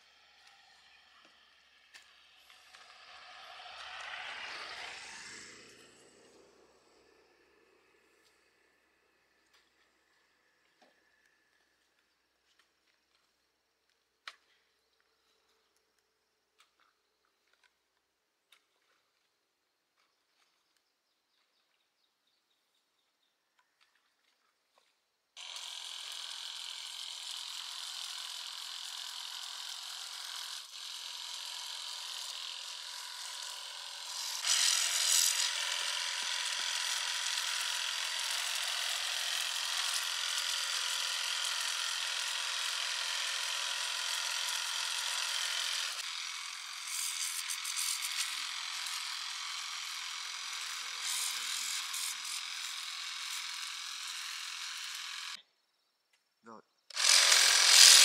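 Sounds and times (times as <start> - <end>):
electric power tool whining: 0.0 - 11.8, 25.4 - 55.4, 56.9 - 58.0.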